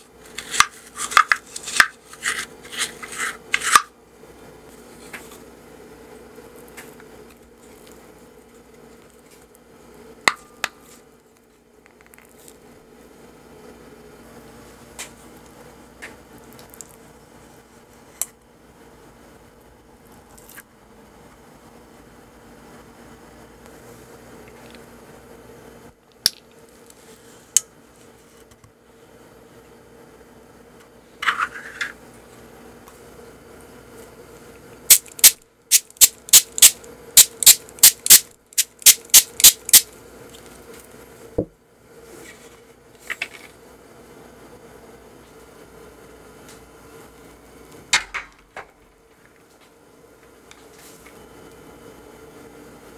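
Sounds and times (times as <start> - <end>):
steady background hum: 0.0 - 52.9
spray bottle spritzing water: 34.9 - 39.8.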